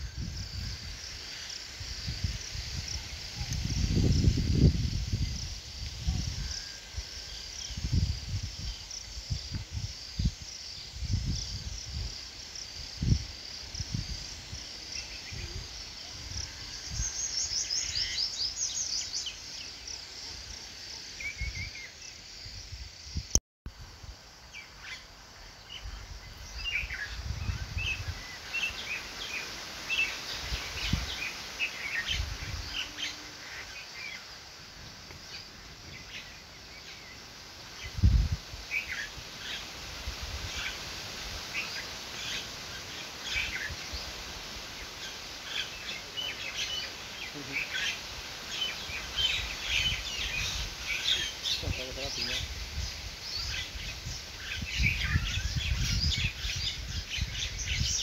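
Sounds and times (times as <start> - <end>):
birds chirping and singing: 44.8 - 58.0.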